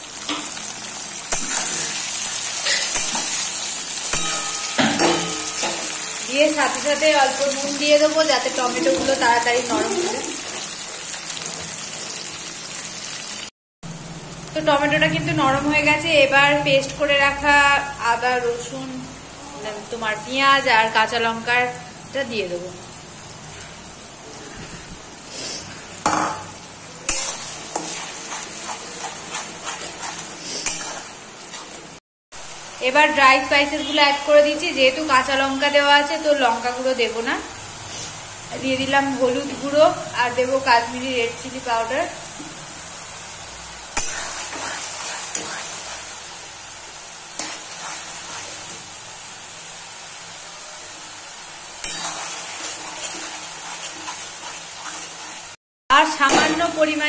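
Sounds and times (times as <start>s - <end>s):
food sizzling in oil: 0.0s - 57.0s
metal spatula knocking pan: 4.2s - 6.0s
spatula scraping pan: 27.1s - 31.9s, 44.0s - 46.2s, 47.4s - 48.8s, 51.8s - 55.5s.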